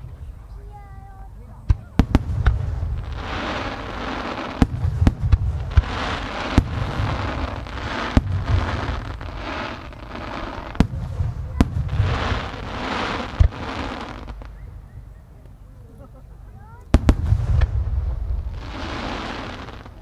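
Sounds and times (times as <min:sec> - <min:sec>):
deep rumbling echoes: 0:00.0 - 0:13.7, 0:16.7 - 0:19.0.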